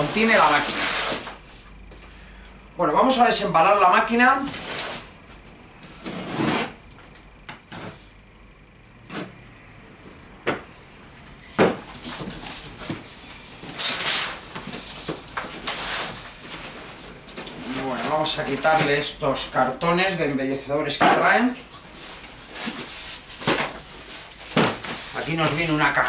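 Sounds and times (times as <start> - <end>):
cardboard rustling and scraping: 0.0 - 1.4, 5.9 - 6.8, 11.6 - 19.0, 21.7 - 26.0.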